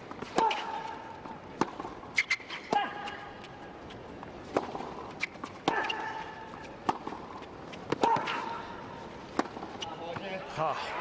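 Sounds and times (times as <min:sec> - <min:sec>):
racket striking tennis ball: 0:00.1 - 0:03.2, 0:04.4 - 0:08.6, 0:09.3 - 0:09.8
shoe squeaks: 0:02.1 - 0:02.7, 0:05.1 - 0:06.8, 0:09.7 - 0:10.1.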